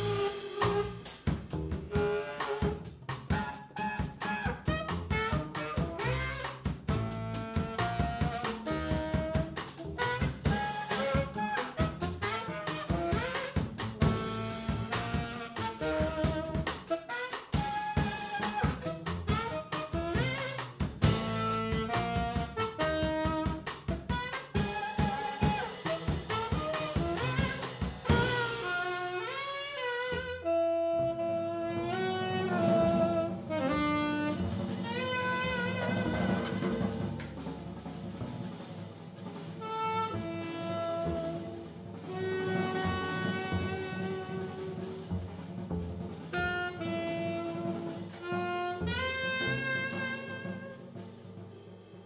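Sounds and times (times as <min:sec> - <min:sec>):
tenor saxophone melody: 0:00.0 - 0:01.2, 0:01.9 - 0:37.2, 0:39.6 - 0:45.1, 0:46.3 - 0:51.0
drum kit playing: 0:00.0 - 0:30.6, 0:31.2 - 0:52.0
walking upright bass: 0:04.7 - 0:10.6, 0:11.8 - 0:16.6, 0:29.9 - 0:50.7.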